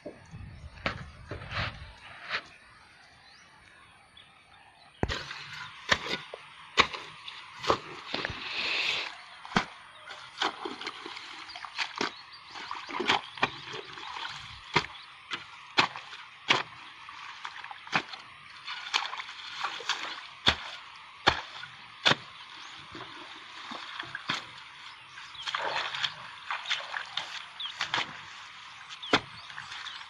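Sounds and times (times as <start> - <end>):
hands scooping wet mud: 5.0 - 30.0.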